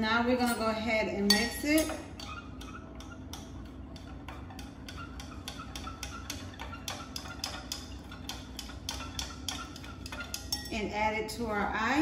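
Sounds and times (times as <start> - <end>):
spoon clinking against glass: 1.3 - 2.0, 9.2 - 10.8.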